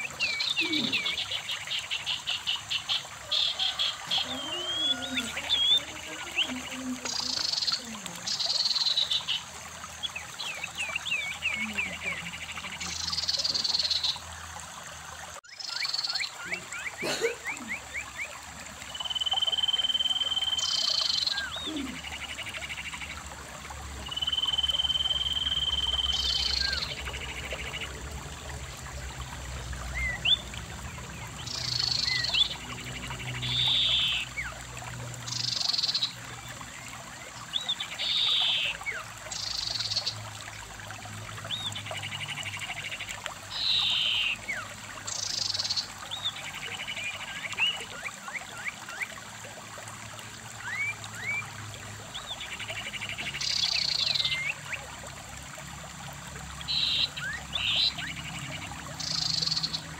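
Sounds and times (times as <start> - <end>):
stream running over rocks: 0.0 - 59.9
animal trills and calls: 2.9 - 8.9.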